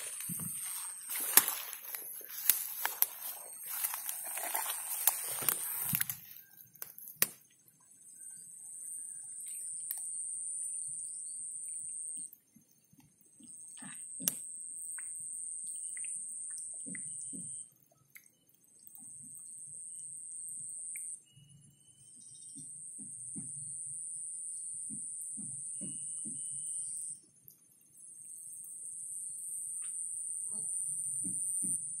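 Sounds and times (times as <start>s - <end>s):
splashy rustle: 0.0s - 6.3s.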